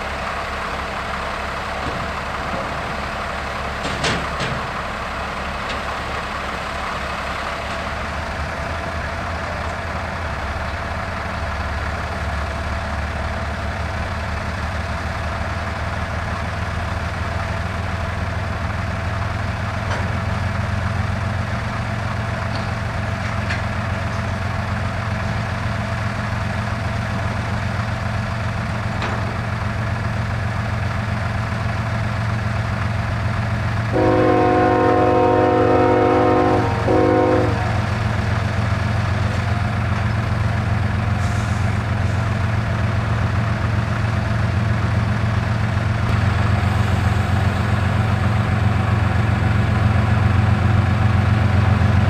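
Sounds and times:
locomotive engine rumble: 0:00.0 - 0:52.0
locomotive air horn blast: 0:33.9 - 0:38.0.

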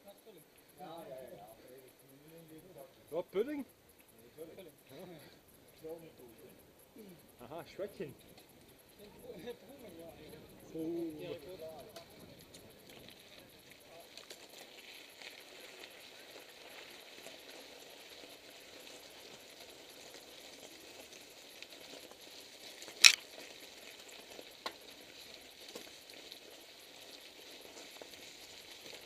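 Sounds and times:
bike tyres crunching over gravel: 0:07.7 - 0:29.0.

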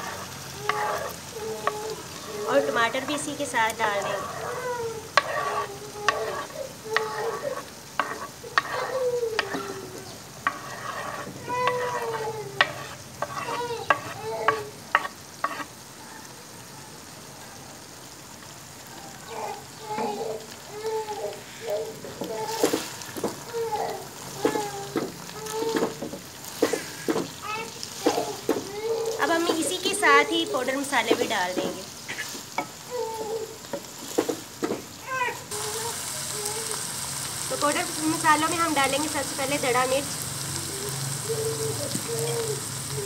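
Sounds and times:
spoon clinking and scraping pot: 0:00.0 - 0:09.8, 0:10.4 - 0:15.7
oil sizzling: 0:00.0 - 0:43.0.

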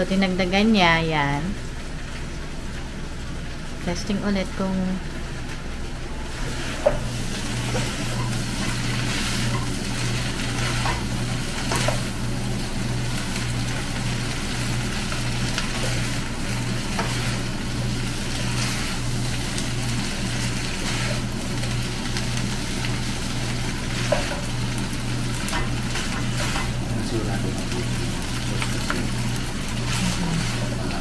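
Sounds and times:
noodles sizzling in a frying pan: 0:00.4 - 0:31.0
spatula scraping and clacking on pan: 0:10.6 - 0:12.1, 0:16.9 - 0:17.4, 0:23.9 - 0:24.6, 0:25.5 - 0:26.8.

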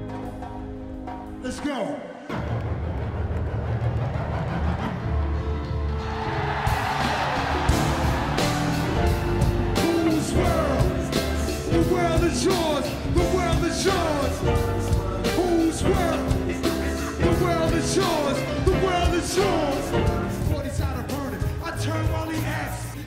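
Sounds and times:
live band playing hip-hop: 0:06.0 - 0:23.0
voice over music: 0:07.7 - 0:23.0.

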